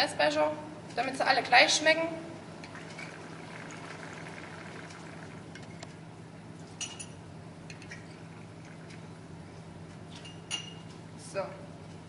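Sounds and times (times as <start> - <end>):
steady low hum: 0.0 - 12.0
liquid pouring into glass: 2.6 - 5.8
light glass clink: 10.2 - 10.8.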